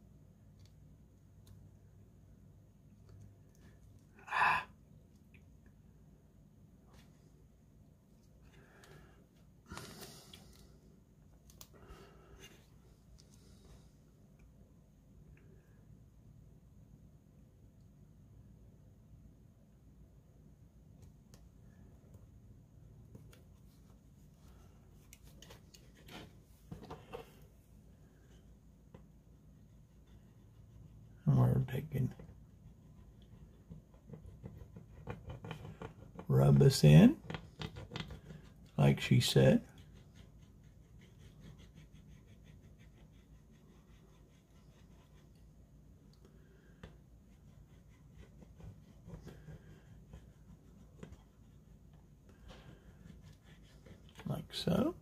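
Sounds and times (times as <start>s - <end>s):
low room hum: 0.0s - 55.0s
tool scratching on decal: 32.1s - 45.4s.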